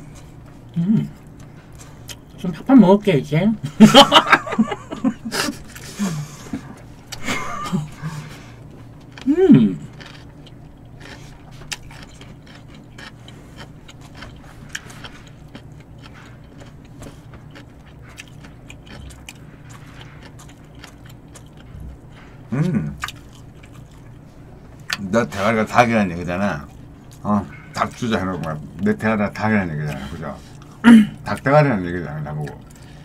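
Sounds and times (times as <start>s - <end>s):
low hum: 0.0s - 31.4s
person humming: 0.8s - 1.2s, 9.2s - 9.9s, 21.8s - 23.0s.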